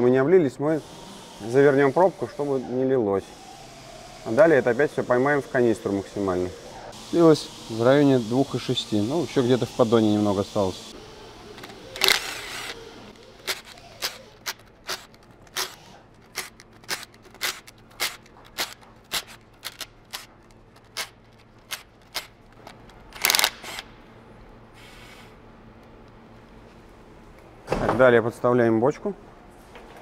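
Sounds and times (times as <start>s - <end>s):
cordless impact wrench running: 11.4s - 20.3s.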